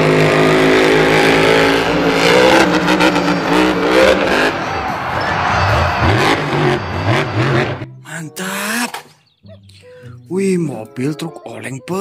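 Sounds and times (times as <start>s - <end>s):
monster truck engine revving: 0.0s - 7.9s.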